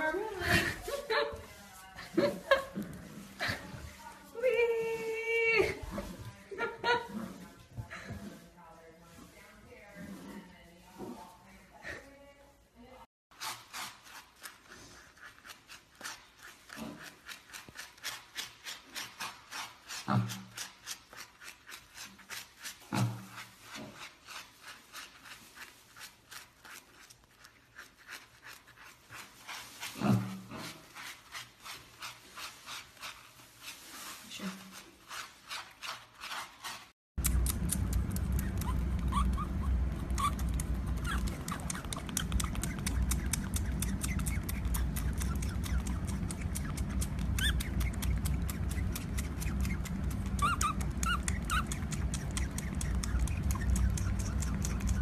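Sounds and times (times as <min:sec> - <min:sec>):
brush scrubbing: 0:00.0 - 0:12.2, 0:13.3 - 0:55.0
steady low hum: 0:37.2 - 0:55.0
piglet grunting: 0:37.3 - 0:55.0
baby otter squeaking: 0:38.3 - 0:55.0.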